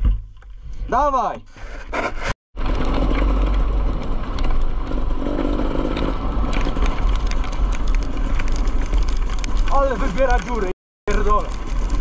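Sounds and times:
wind rushing over microphone: 2.6 - 10.5
dirt bike engine running: 2.6 - 12.0.

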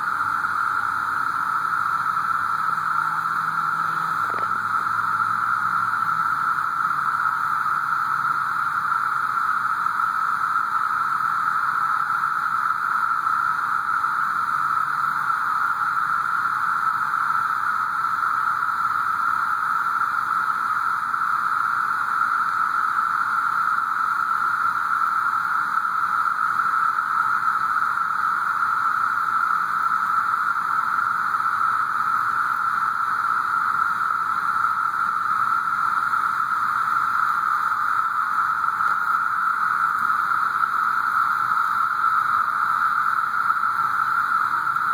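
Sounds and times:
cicadas buzzing: 0.0 - 44.9.

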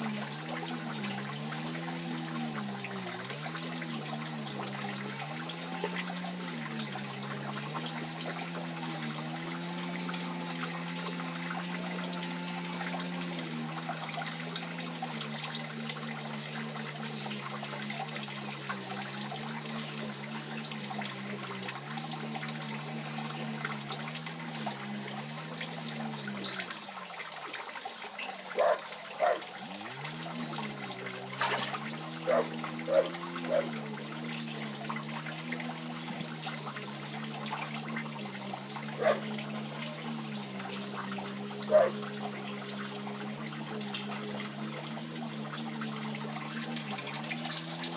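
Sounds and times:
low wavering hum: 0.0 - 27.1, 28.3 - 47.9
water pouring into tank: 0.0 - 47.9
short sharp splashes: 28.3 - 47.9.

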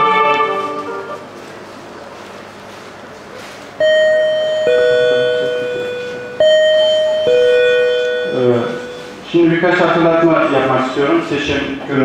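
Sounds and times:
electronic two-note chime: 3.8 - 9.2.

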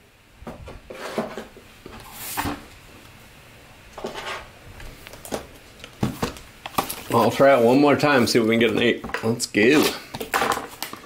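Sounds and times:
plastic cases clicking and knocking: 10.1 - 11.0.

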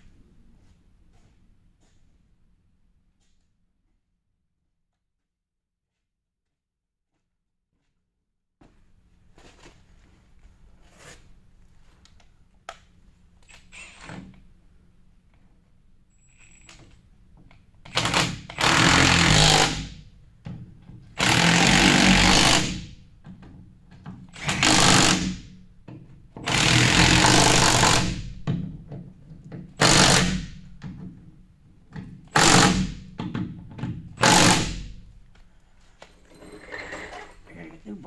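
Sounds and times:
impact wrench hammering bolts: 17.8 - 31.3, 31.9 - 35.0.

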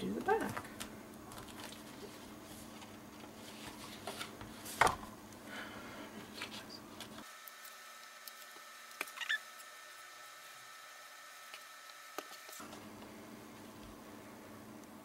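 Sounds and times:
low background hum: 0.0 - 15.0
paper folder rustling: 0.2 - 5.0.

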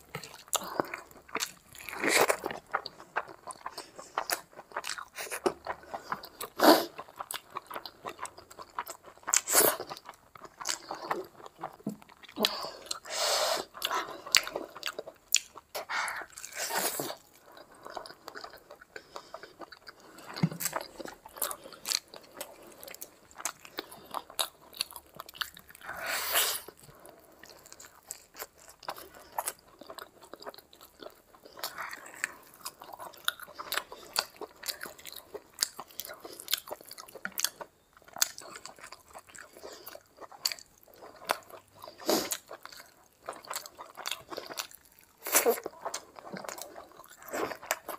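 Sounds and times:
food crunching: 0.0 - 47.9
wet chewing and lip smacks: 26.6 - 47.9.

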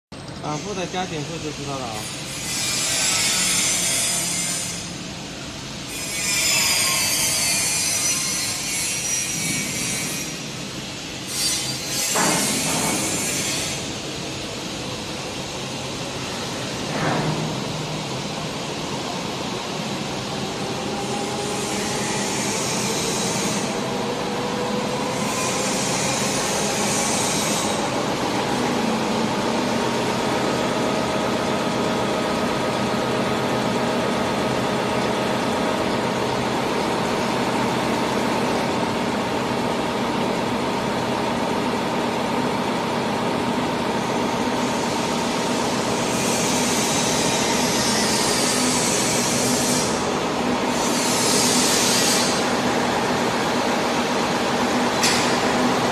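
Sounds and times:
printing machine whine: 0.2 - 2.3.

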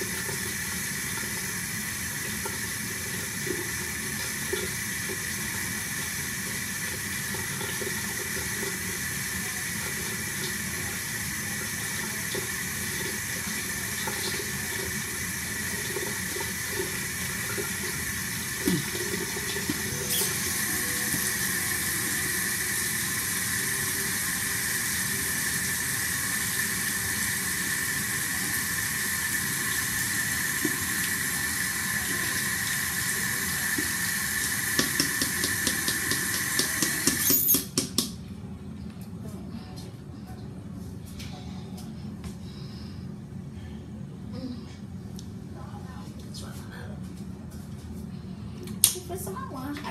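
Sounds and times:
tap running into sink: 15.9 - 21.5, 33.6 - 38.2.

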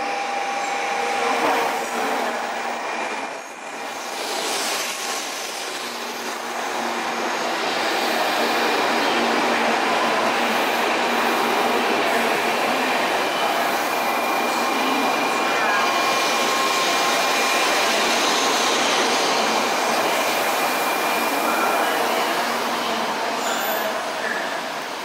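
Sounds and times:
train wheel and running noise: 0.0 - 25.0.

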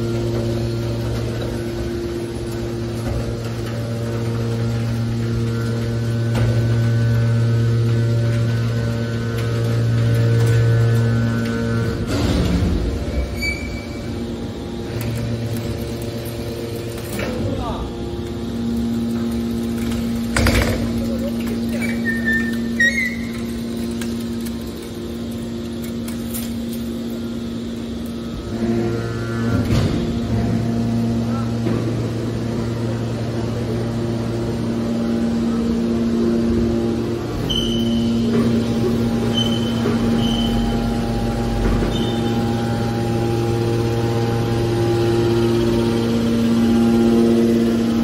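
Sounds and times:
hydraulic baler humming: 0.0 - 48.0
high metallic squeal: 13.1 - 14.2, 21.8 - 23.6, 37.4 - 38.2, 39.2 - 40.9, 41.9 - 42.6.

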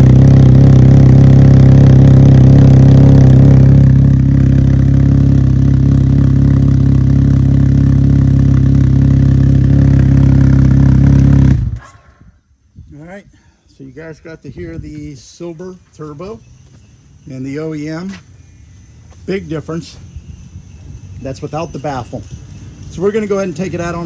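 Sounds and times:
engine idling: 0.0 - 11.8.

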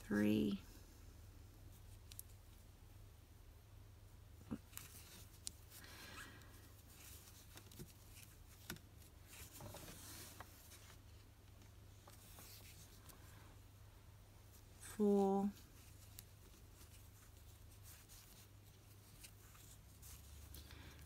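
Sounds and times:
yarn rubbing: 4.4 - 11.3, 12.0 - 13.4, 14.4 - 21.0.

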